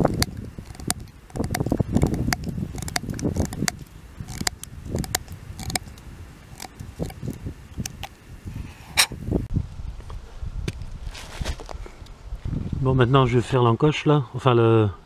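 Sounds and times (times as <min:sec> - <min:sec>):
knife cutting bamboo: 0:00.0 - 0:08.2.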